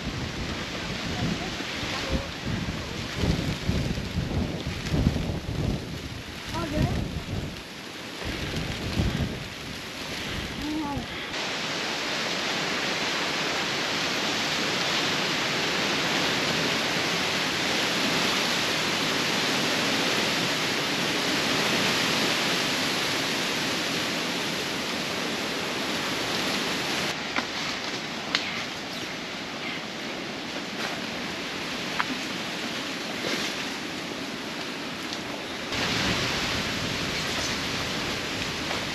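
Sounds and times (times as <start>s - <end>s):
forest ambience hiss: 0.0s - 38.9s.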